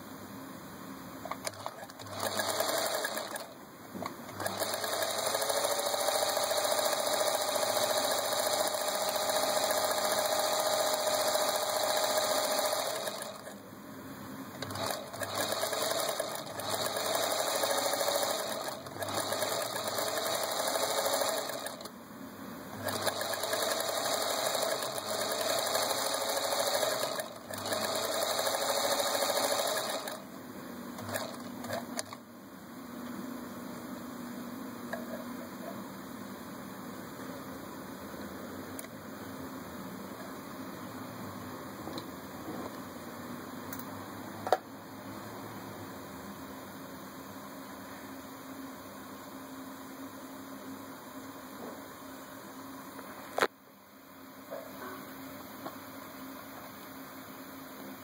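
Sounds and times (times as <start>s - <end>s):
sewing machine running: 1.3s - 3.6s, 4.3s - 13.6s, 14.6s - 21.9s, 22.8s - 30.3s, 31.0s - 32.2s.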